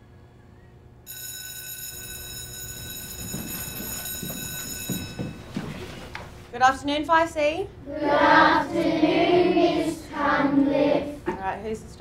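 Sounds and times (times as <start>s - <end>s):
electronic school bell ringing: 1.1s - 6.3s
knocks and shuffling: 2.1s - 6.8s
class bustling in: 2.3s - 6.4s, 7.9s - 11.2s.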